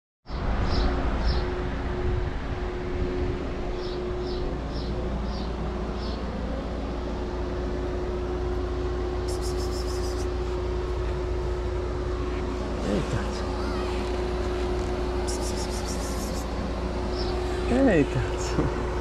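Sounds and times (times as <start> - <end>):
low mechanical hum: 0.3 - 19.0
short high chirps: 9.3 - 10.3, 15.3 - 16.5.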